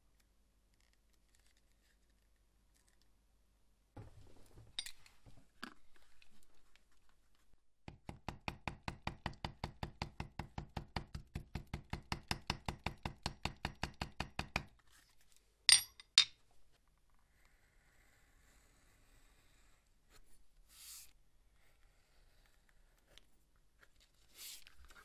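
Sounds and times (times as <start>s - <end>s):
hammer tapping leather on stone: 7.8s - 14.7s
hammer set down on stone: 15.7s - 16.4s.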